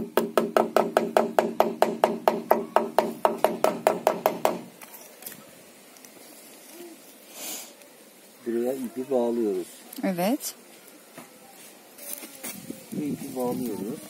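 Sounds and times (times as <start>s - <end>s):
hammer tapping on wood: 0.2s - 4.6s.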